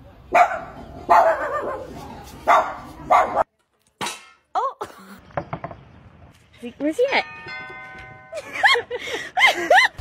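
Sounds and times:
dog barking: 0.3s - 3.5s.

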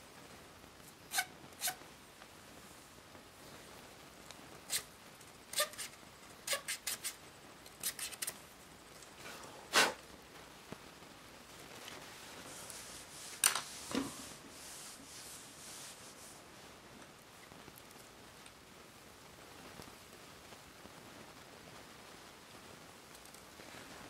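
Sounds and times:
paintbrush scrubbing plastic: 12.4s - 16.4s.

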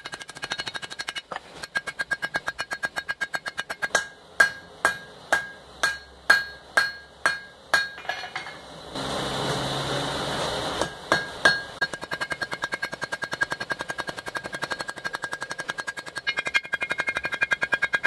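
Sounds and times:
hammer striking iron on anvil: 0.0s - 8.7s, 10.8s - 18.0s
anvil ringing: 1.7s - 8.7s, 10.8s - 18.0s.

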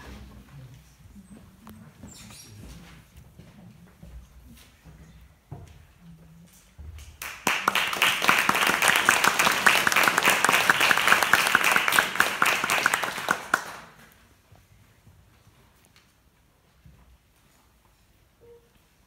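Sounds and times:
audience applauding: 7.2s - 14.2s.

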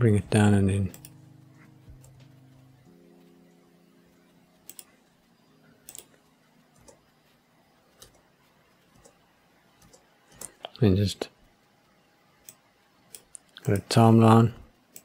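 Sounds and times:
faint hum: 0.0s - 15.0s
computer mouse and keyboard clicks: 4.6s - 4.9s, 5.8s - 6.2s, 6.8s - 7.0s, 7.9s - 8.2s, 8.9s - 9.2s, 9.8s - 10.8s.

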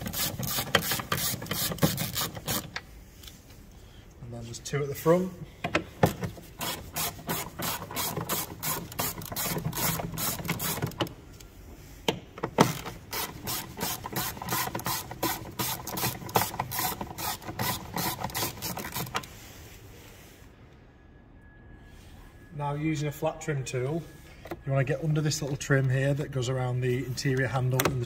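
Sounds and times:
ratchet clicking: 12.7s - 19.2s.

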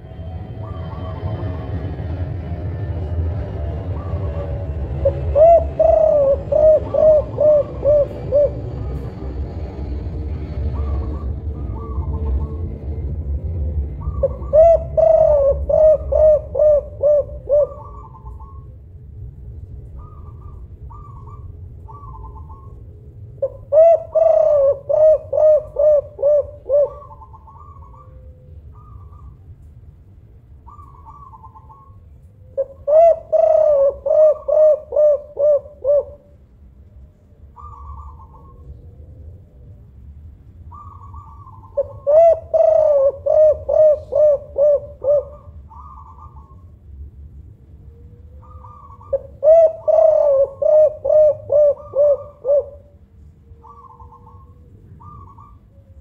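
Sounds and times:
fainter higher bird notes: 0.0s - 9.1s
dove cooing: 3.8s - 9.4s, 10.4s - 12.8s, 13.9s - 18.8s, 19.9s - 29.4s, 30.6s - 36.4s, 37.0s - 39.8s, 40.7s - 46.8s, 47.8s - 56.0s.

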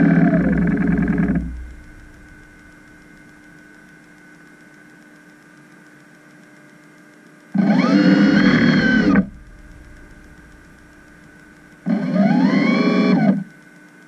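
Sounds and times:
constant tones: 0.0s - 4.0s, 7.6s - 13.5s
faint electrical hum with hiss: 0.0s - 14.0s.

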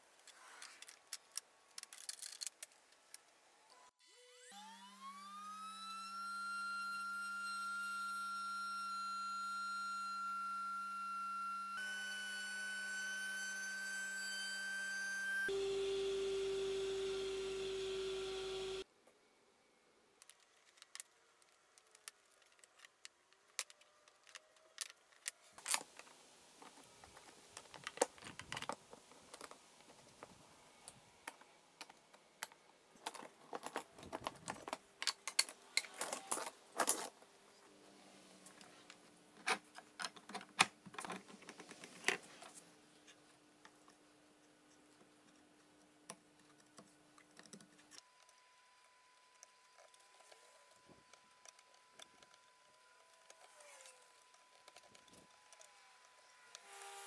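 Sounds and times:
faint steady hum: 5.4s - 40.2s.

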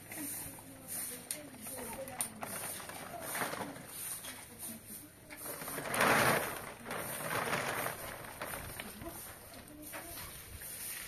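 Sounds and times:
cloth sheet rustling: 5.4s - 9.4s.

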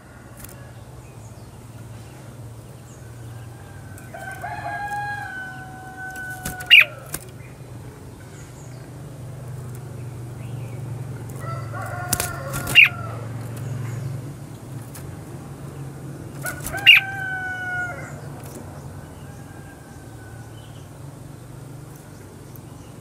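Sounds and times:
rooster crowing: 3.4s - 7.1s, 11.4s - 13.4s, 16.4s - 18.3s, 19.0s - 20.8s
bird chirping sharply: 5.2s - 7.6s, 16.5s - 17.2s.

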